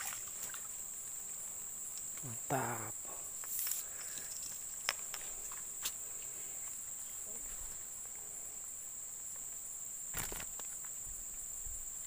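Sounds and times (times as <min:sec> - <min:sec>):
insect chorus: 0:00.0 - 0:12.0
short vocal exclamation: 0:02.2 - 0:03.0.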